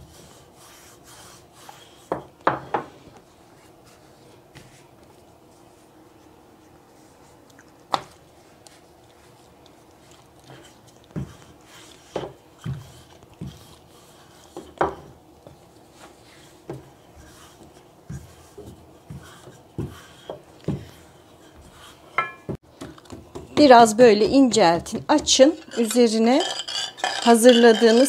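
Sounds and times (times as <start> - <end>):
rolling pin knocking on countertop: 2.1 - 2.9.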